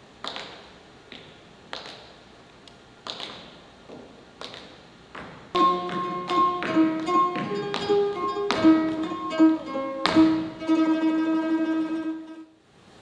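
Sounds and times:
plucked string instrument: 0:05.6 - 0:12.6.

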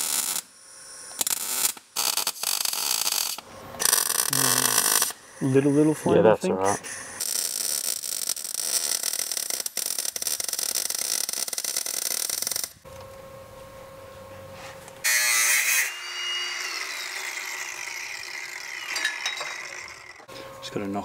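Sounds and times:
mig welder crackling: 0:00.0 - 0:05.2, 0:07.2 - 0:13.1
power tool whirring: 0:02.4 - 0:05.8, 0:15.0 - 0:20.3.

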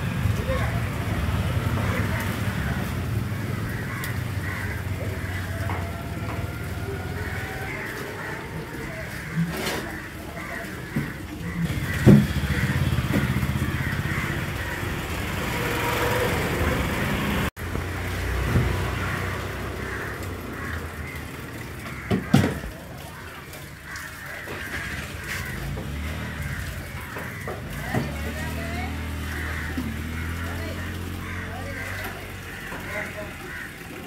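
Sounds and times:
engine running: 0:11.0 - 0:22.0, 0:24.6 - 0:34.0.

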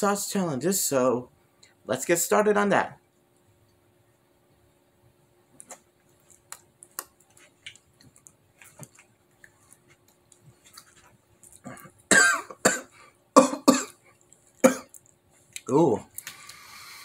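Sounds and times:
man coughing hard: 0:12.1 - 0:14.0, 0:14.6 - 0:14.9.

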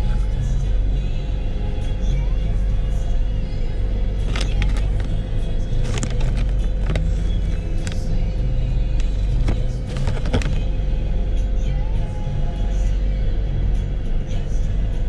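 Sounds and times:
car cabin rumble: 0:00.0 - 0:13.3
music playing: 0:00.0 - 0:15.0
brief clicks and rustles: 0:04.3 - 0:05.2, 0:05.8 - 0:08.1, 0:09.0 - 0:10.6.

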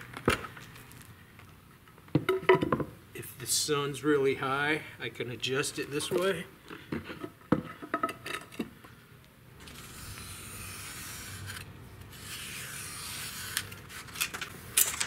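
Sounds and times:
blade scratching through foam board: 0:09.6 - 0:14.2.

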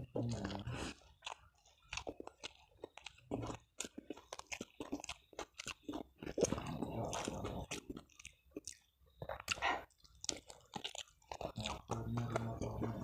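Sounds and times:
person chewing crunchy food: 0:00.0 - 0:13.0.

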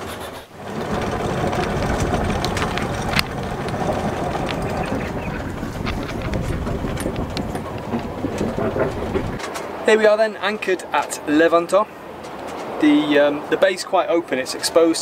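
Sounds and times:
boat engine running: 0:00.1 - 0:09.4.

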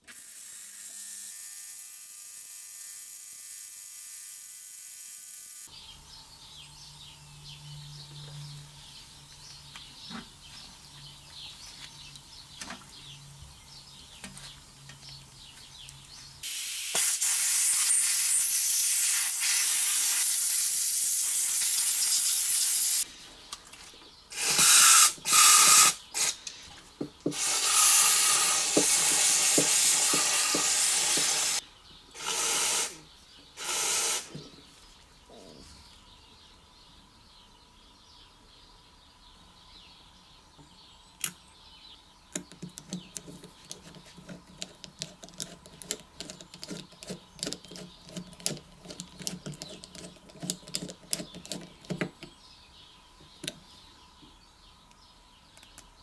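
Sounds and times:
aerosol spray hissing: 0:16.4 - 0:23.0, 0:24.4 - 0:26.3, 0:27.3 - 0:31.6, 0:33.6 - 0:34.3
ultrasonic cleaner humming: 0:27.2 - 0:31.6.

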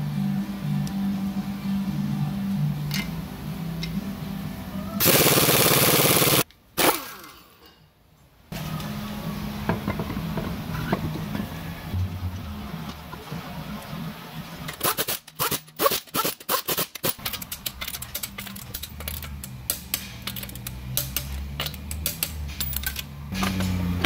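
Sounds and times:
lug nuts clicking and rattling: 0:14.7 - 0:23.8.

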